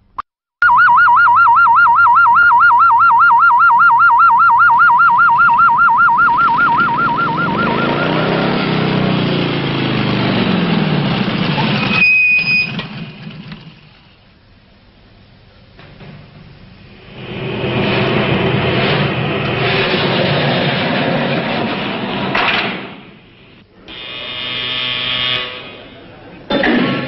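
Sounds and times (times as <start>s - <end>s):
air-raid siren warbling: 0.6s - 12.7s
jet aircraft roar: 5.4s - 14.2s, 15.8s - 24.0s.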